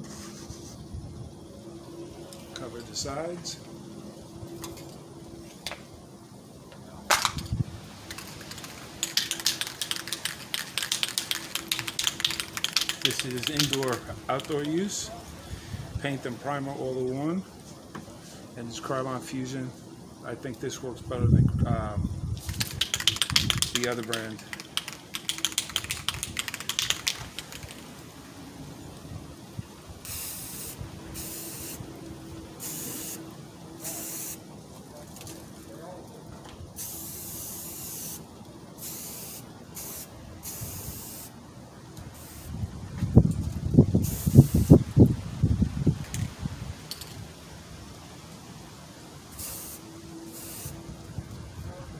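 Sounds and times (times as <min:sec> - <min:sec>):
spray paint hissing: 0:00.0 - 0:00.9, 0:08.0 - 0:14.9, 0:22.3 - 0:28.0, 0:30.0 - 0:31.9, 0:32.5 - 0:34.5, 0:36.7 - 0:41.4, 0:42.0 - 0:42.6, 0:43.9 - 0:45.0, 0:49.3 - 0:50.8
spray can ball rattling: 0:07.1 - 0:15.0, 0:22.4 - 0:28.0, 0:30.0 - 0:31.8, 0:32.6 - 0:33.2, 0:36.8 - 0:38.2, 0:38.8 - 0:41.3, 0:43.4 - 0:44.8, 0:49.3 - 0:50.8.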